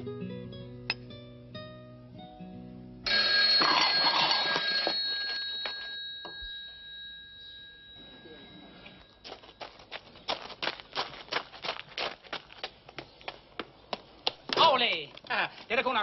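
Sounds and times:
bell ringing: 3.1s - 9.9s.

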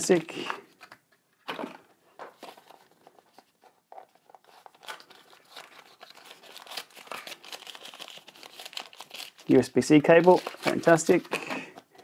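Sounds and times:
plastic bag crinkling: 4.1s - 12.0s.

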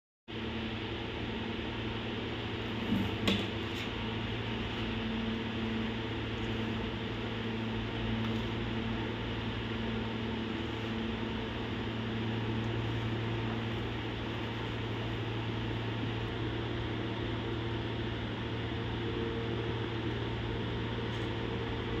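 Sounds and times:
motor hum and hiss: 0.4s - 22.0s.

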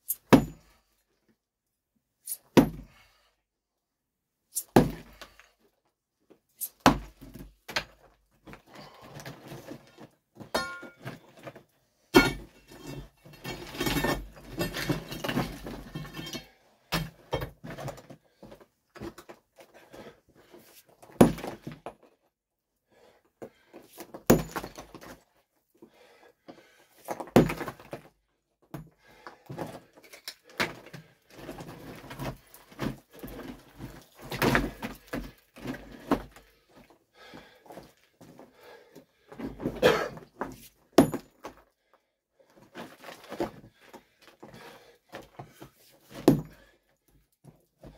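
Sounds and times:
sledgehammer striking rock: 0.2s - 0.7s, 2.5s - 2.9s, 4.6s - 5.2s, 6.8s - 7.2s, 12.2s - 12.5s, 21.2s - 21.6s, 24.3s - 24.9s, 27.4s - 27.8s, 41.0s - 41.4s, 46.1s - 46.6s
loose rock clattering and scraping: 6.8s - 22.2s, 29.4s - 41.7s, 42.4s - 46.8s.

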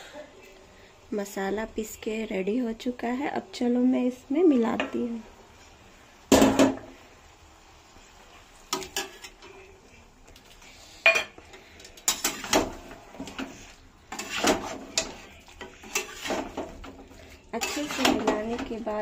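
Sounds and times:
metal spatula scraping metal pan: 12.1s - 18.9s.

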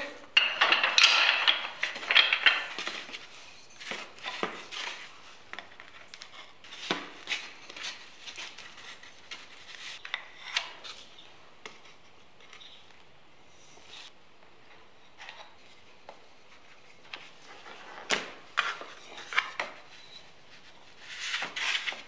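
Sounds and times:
wooden dowels clattering: 0.0s - 10.9s, 14.8s - 20.4s.

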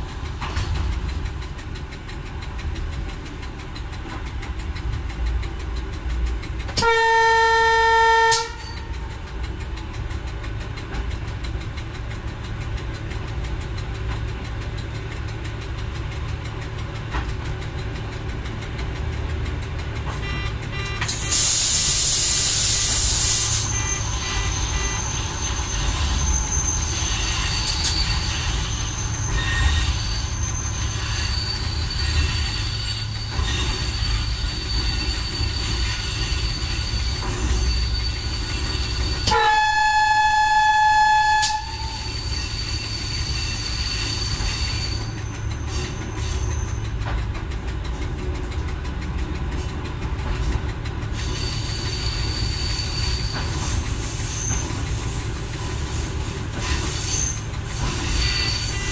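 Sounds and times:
railcar engine and wheels rumbling: 0.0s - 58.9s
train horn: 6.8s - 9.0s, 20.1s - 21.5s, 23.6s - 25.1s, 39.2s - 42.2s
high wheel squeal: 19.5s - 47.2s, 50.4s - 58.9s.

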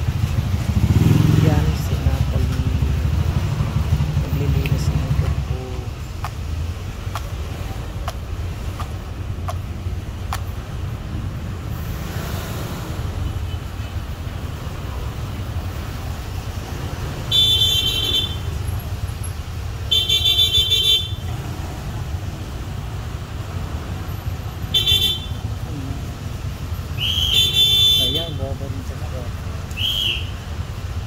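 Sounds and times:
low traffic rumble: 0.0s - 31.0s
vehicle horn honking: 17.3s - 18.4s, 19.9s - 21.2s, 24.7s - 25.4s, 27.0s - 28.4s.

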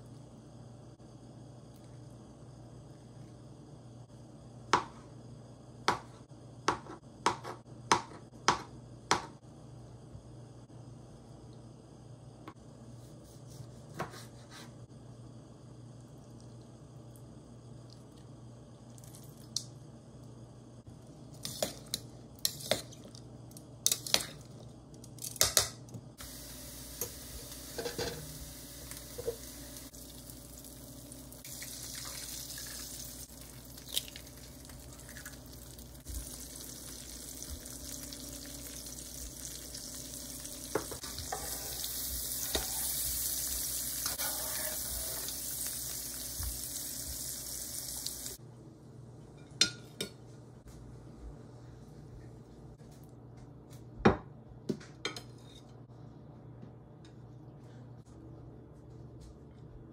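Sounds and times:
eggs sizzling in a pan: 26.2s - 48.4s.

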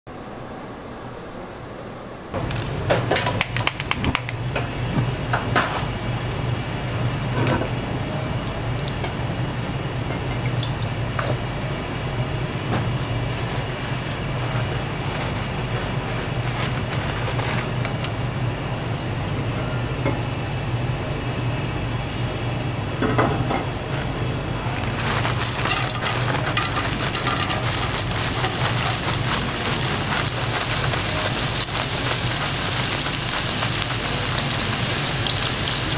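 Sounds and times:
steady low hum: 4.1s - 35.9s
vegetables sizzling in oil: 12.8s - 19.0s, 24.0s - 35.9s.

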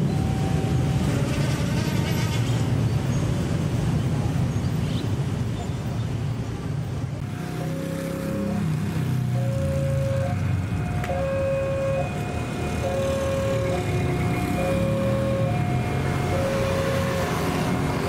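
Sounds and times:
level crossing two-tone alarm: 7.6s - 18.0s.

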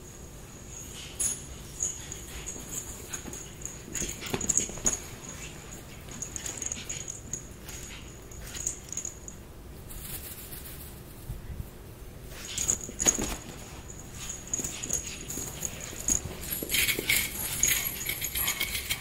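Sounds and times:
thumps and rustles: 1.0s - 9.1s, 12.3s - 19.0s.

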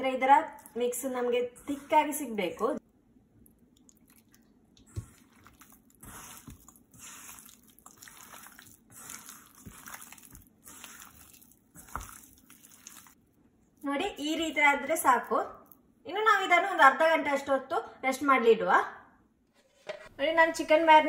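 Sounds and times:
wet squelching of hand mixing: 3.2s - 13.8s.

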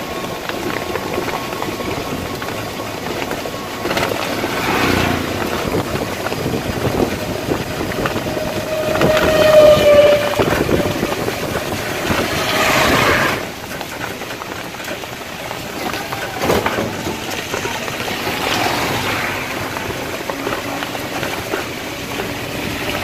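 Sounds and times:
vehicle running noise: 0.0s - 23.0s
vehicle horn: 7.8s - 11.8s.

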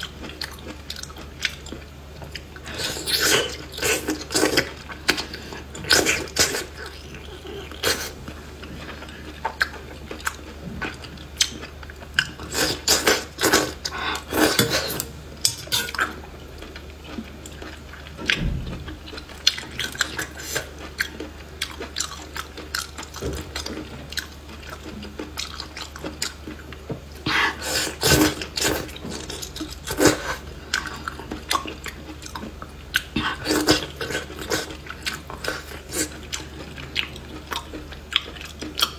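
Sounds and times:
moist chewing mouth sounds: 15.7s - 38.9s.

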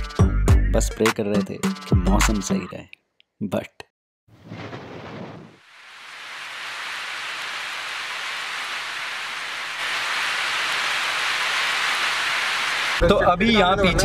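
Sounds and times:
rain on car windshield and roof: 5.6s - 13.0s.

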